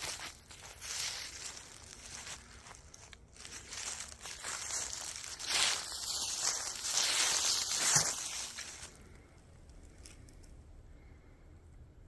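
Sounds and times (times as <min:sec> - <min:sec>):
footsteps crunching dry leaves: 0:00.0 - 0:09.1.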